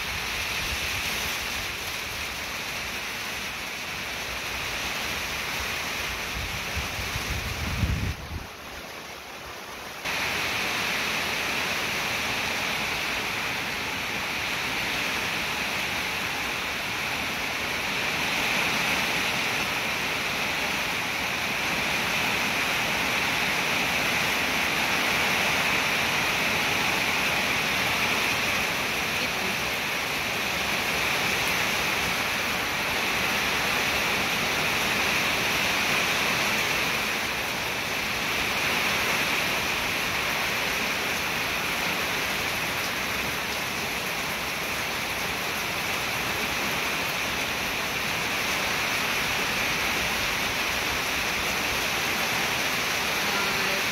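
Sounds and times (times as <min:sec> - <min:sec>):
heavy rain falling: 0:00.0 - 0:53.9.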